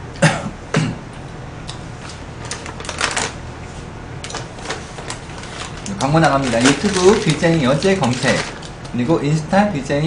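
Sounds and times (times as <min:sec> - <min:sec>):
plastic wrapper crinkling: 0:02.0 - 0:03.4, 0:04.2 - 0:09.2.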